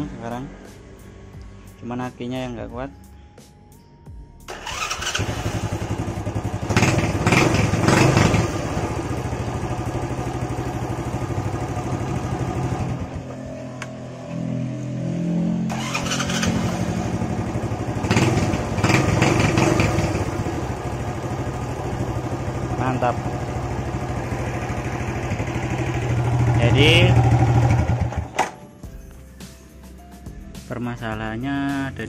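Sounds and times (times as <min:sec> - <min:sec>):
motorcycle engine starting and revving: 0:04.5 - 0:28.6.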